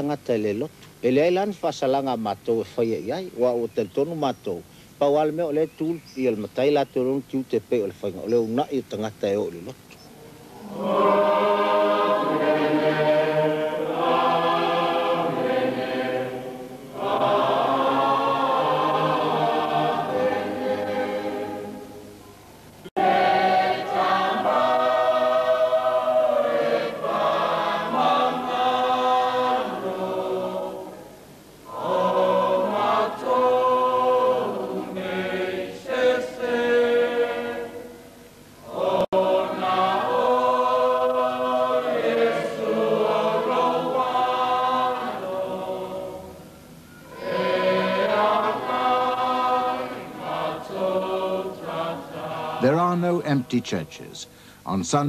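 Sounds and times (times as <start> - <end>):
choir singing a hymn: 10.3 - 22.2, 22.8 - 53.6.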